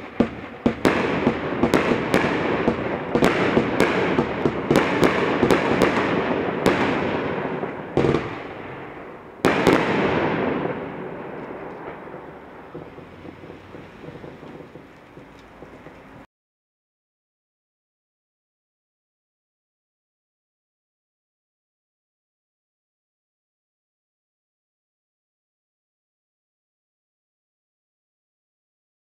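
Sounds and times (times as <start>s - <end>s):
firework cake shots: 0.0s - 16.3s
firework crackle: 0.0s - 16.3s.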